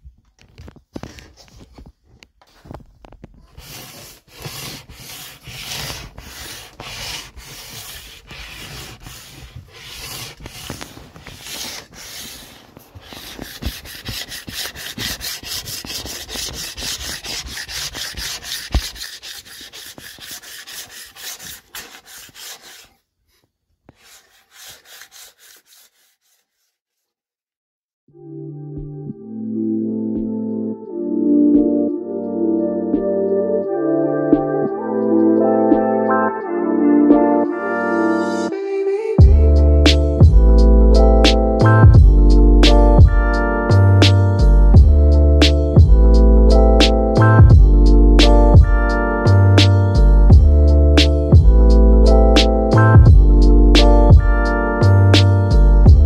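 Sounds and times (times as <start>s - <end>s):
wax scraper scraping snowboard: 3.5s - 23.0s, 23.9s - 27.1s.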